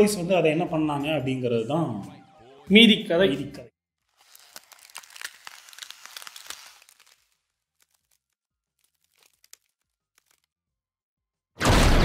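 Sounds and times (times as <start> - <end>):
ice crackling and crunching: 4.0 - 10.7.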